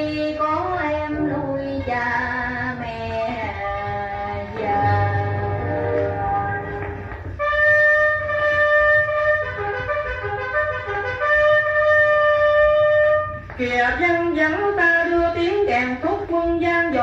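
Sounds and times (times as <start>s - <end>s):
instrumental music on vinyl record: 1.2s - 7.4s.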